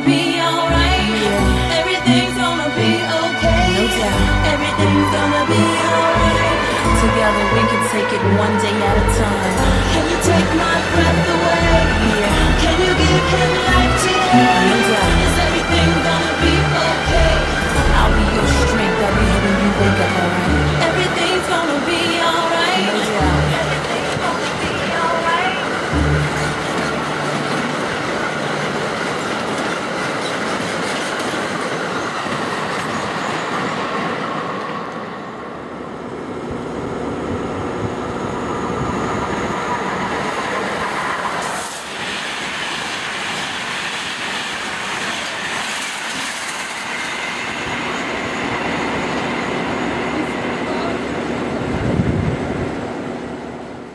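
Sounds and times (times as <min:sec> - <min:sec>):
freight train rushing past: 0:00.0 - 0:53.9
passenger train rumbling past: 0:00.0 - 0:53.9
wheels clattering over rail joints: 0:20.9 - 0:33.5.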